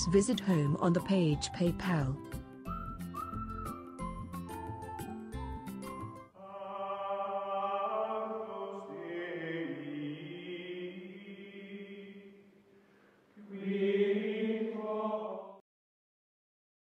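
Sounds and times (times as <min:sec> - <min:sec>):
choir singing held chords: 0:06.3 - 0:12.5, 0:13.4 - 0:15.6.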